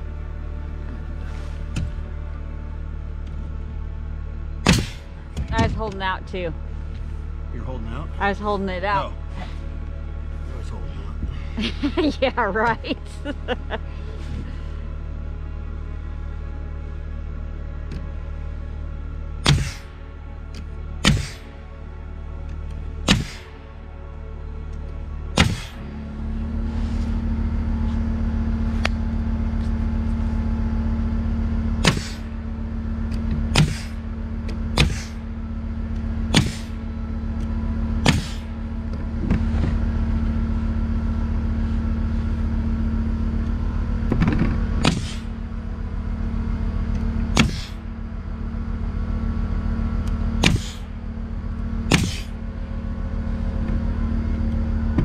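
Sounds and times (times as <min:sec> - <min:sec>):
air compressor running: 0:19.4 - 0:21.6, 0:22.5 - 0:23.7, 0:24.9 - 0:55.0
nail gun firing: 0:51.9 - 0:52.2.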